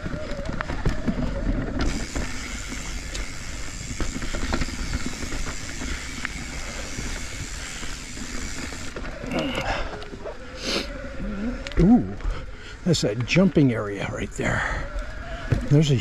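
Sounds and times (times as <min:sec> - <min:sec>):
bike knocking and rattling: 0:00.0 - 0:10.4.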